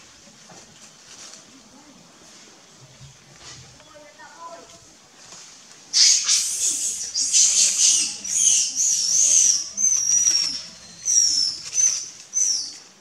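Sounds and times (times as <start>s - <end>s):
high-pitched animal calls: 6.0s - 12.8s.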